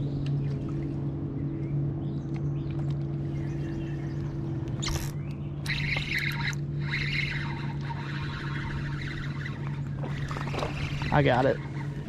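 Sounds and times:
steady low hum: 0.0 - 12.0
fishing reel whirring: 4.8 - 12.0.

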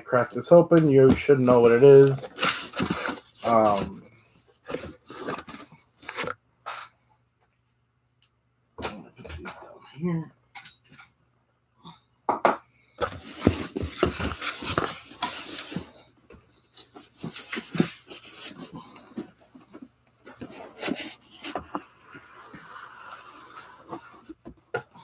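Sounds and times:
cardboard box rustling and scraping: 2.2 - 4.0, 4.6 - 6.3, 13.0 - 16.0, 16.7 - 25.0.

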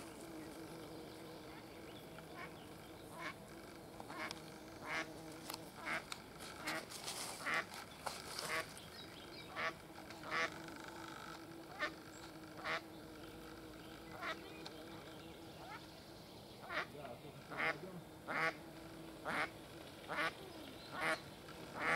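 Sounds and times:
ducks quacking: 5.8 - 7.7, 9.5 - 10.6, 11.7 - 12.0, 16.6 - 18.6, 19.2 - 21.9.

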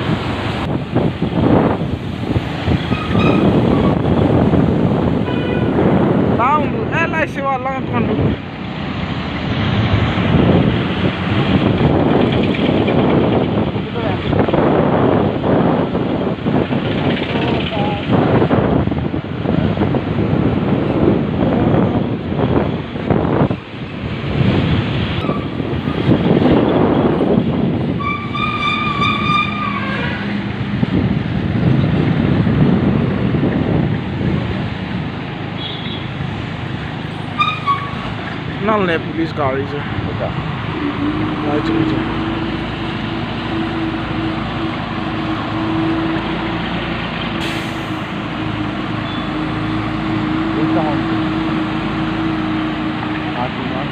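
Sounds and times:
wind on microphone: 0.0 - 39.2, 39.8 - 53.9
road rumble: 0.0 - 53.9
vehicle horn: 5.2 - 5.8, 28.0 - 30.2, 35.6 - 36.1, 40.8 - 42.0.

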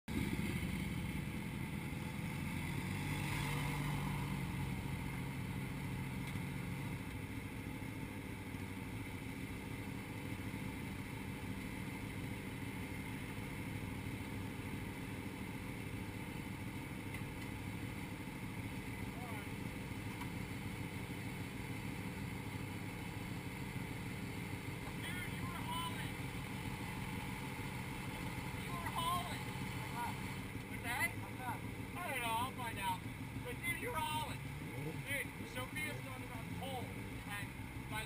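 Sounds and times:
motorcycle engines idling: 0.1 - 38.0
motorcycles rolling in: 0.1 - 38.0.

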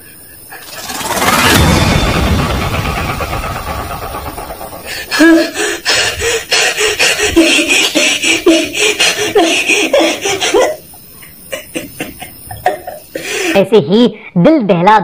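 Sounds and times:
low rumble: 0.6 - 5.6.

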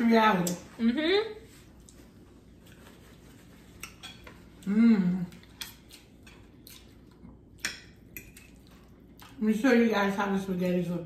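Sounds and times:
cutlery clinking against a dish: 3.7 - 4.5, 7.6 - 8.6
person humming: 4.6 - 5.4.

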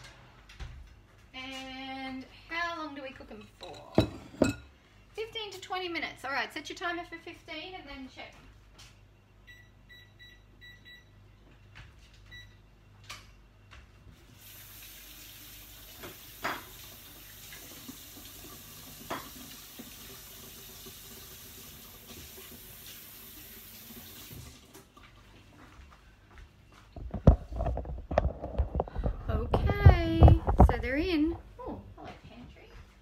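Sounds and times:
kitchen timer beeps: 9.4 - 11.2
tap running into sink: 15.8 - 21.0.

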